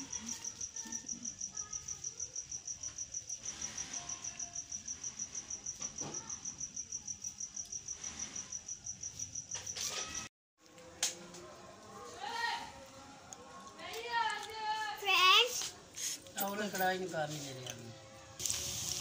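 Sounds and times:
cricket chirping: 0:00.0 - 0:10.3.

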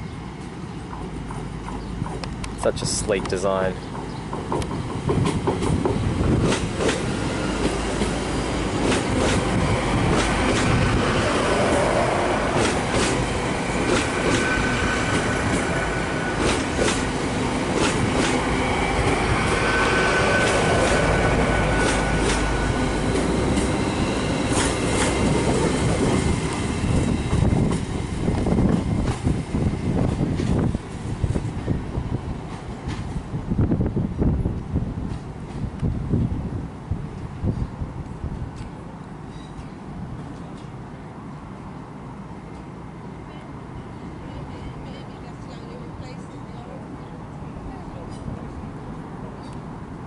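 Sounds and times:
diesel train passing: 0:00.0 - 0:50.0
train wheels clicking over rail joints: 0:03.2 - 0:10.9, 0:12.5 - 0:15.7, 0:16.4 - 0:18.4, 0:21.8 - 0:29.4.

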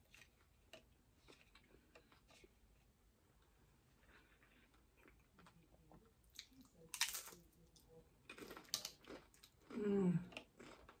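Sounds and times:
chewing and crunching taco: 0:04.0 - 0:11.0.

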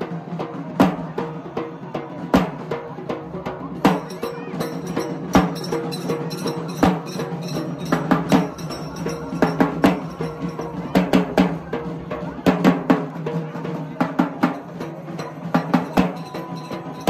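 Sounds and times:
heavy drum strikes: 0:03.4 - 0:17.0.

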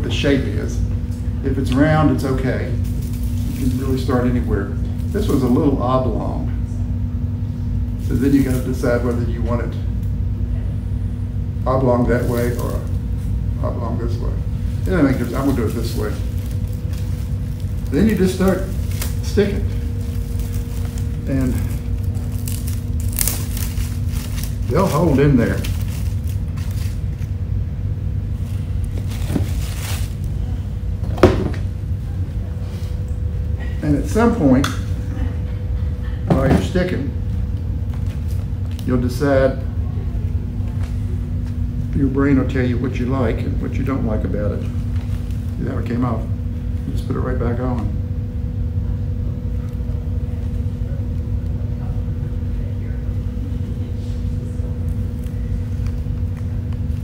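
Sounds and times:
faint hum: 0:00.0 - 0:57.0
steady low rumble: 0:00.0 - 0:57.0
rustling of artificial leaves: 0:14.6 - 0:27.3, 0:28.3 - 0:30.5.

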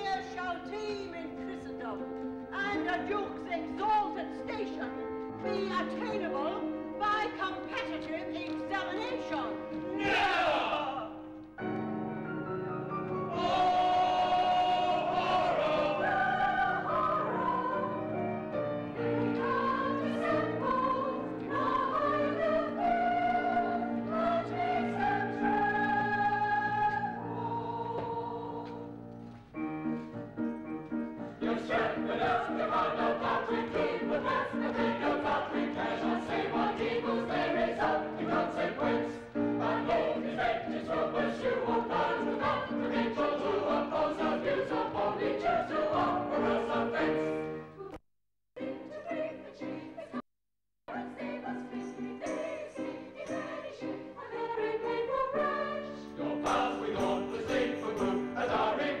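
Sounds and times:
chorus singing: 0:09.2 - 0:11.4, 0:12.8 - 0:29.1, 0:30.9 - 0:48.0, 0:48.6 - 0:50.2, 0:50.9 - 0:59.0.

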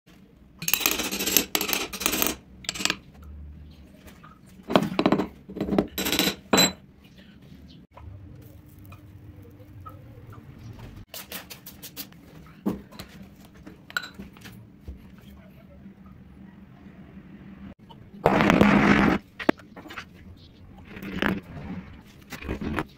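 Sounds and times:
metal tools scraping and clinking: 0:00.6 - 0:03.0, 0:04.7 - 0:06.8, 0:13.9 - 0:14.2.

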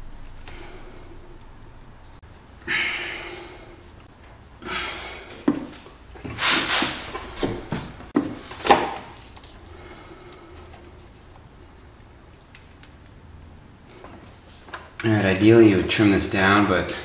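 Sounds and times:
rubbing and knocking handling noises: 0:05.3 - 0:09.6.

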